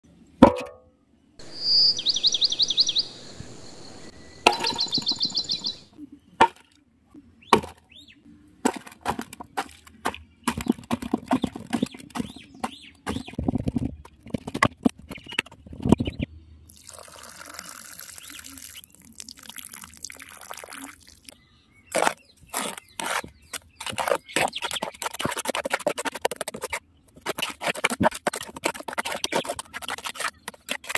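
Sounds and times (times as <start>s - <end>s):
bird chirping trills: 1.4s - 6.0s
water pouring onto clay: 16.7s - 21.3s.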